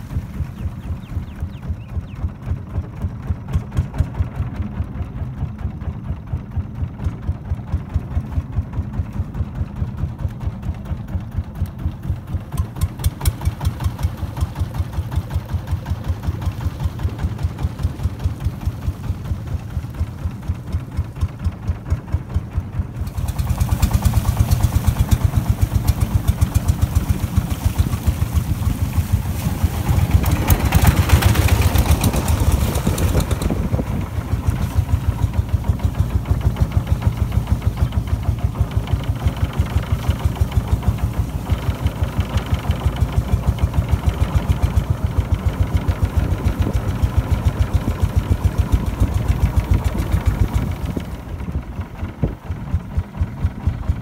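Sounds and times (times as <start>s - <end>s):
motorboat engine thumping: 0.0s - 54.0s
hiss: 23.1s - 33.4s.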